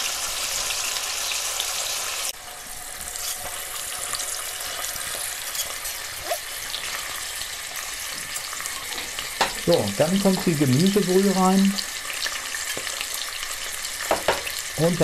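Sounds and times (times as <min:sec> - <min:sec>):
chicken sizzling in pot: 0:00.0 - 0:15.0.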